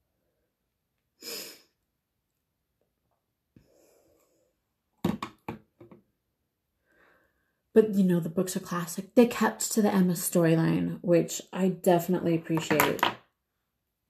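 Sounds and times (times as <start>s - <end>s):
knocks on hard surface: 5.0s - 6.0s.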